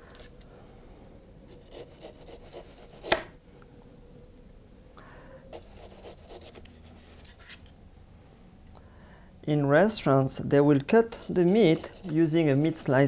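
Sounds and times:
knife sawing frozen meat: 1.6 - 3.2.

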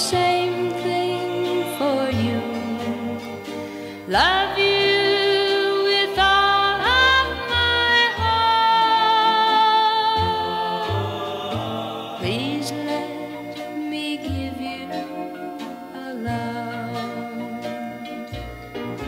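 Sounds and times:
person singing slow ballad: 0.0 - 18.3
steady bass line: 0.0 - 19.0.

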